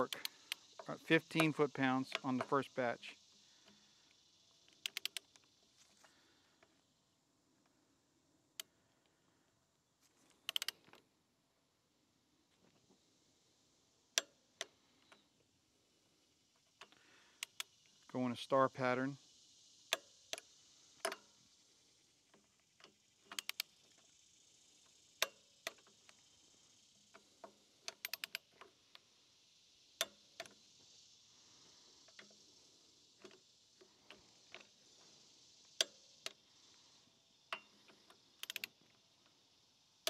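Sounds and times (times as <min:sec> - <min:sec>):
torque wrench clicking: 0:00.0 - 0:03.4, 0:04.1 - 0:05.6, 0:10.5 - 0:11.0, 0:16.8 - 0:18.1, 0:19.3 - 0:21.4, 0:22.4 - 0:31.1, 0:32.0 - 0:39.6.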